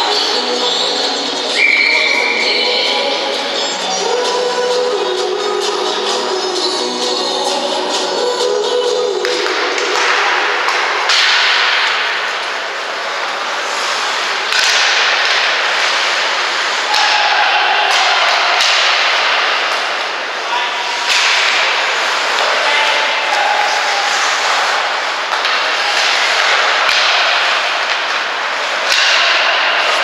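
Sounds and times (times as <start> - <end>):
hockey sticks and puck clacking: 9.1 - 30.0
skate blades scraping ice: 9.2 - 17.0, 18.8 - 30.0.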